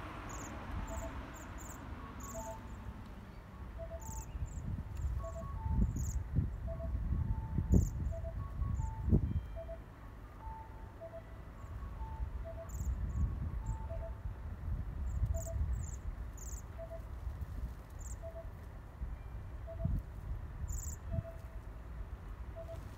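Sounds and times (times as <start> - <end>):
birds giving high trilled calls: 0.3 - 2.8, 3.8 - 6.9.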